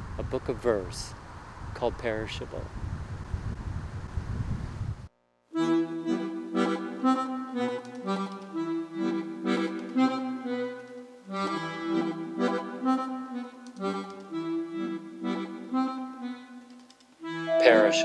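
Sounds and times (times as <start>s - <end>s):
accordion music: 5.5s - 18.0s.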